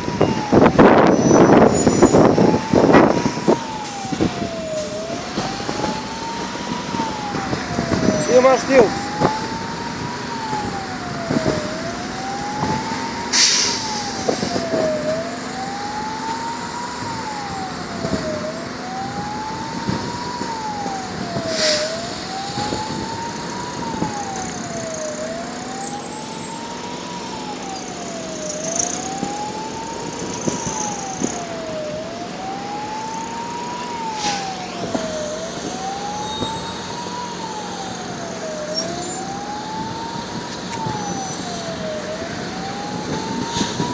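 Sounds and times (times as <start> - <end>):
fire engine siren wailing: 0.0 - 43.9
traffic noise: 0.0 - 43.9.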